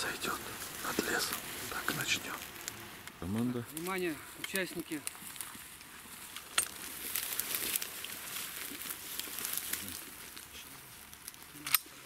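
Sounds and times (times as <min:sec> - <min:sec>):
dry grass rustling underfoot: 0:00.0 - 0:12.0.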